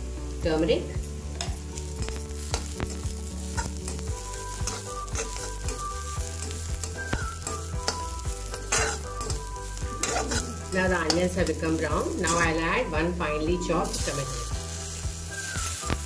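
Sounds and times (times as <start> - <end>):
vegetables sizzling in hot oil: 0.0 - 16.0
spatula scraping a pan: 3.5 - 12.4.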